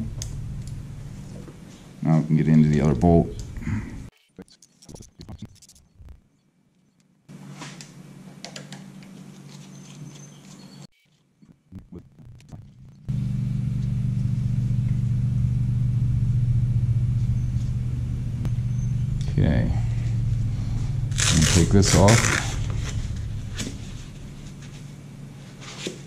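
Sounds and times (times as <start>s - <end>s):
low machine hum: 0.0s - 4.1s, 11.5s - 26.0s.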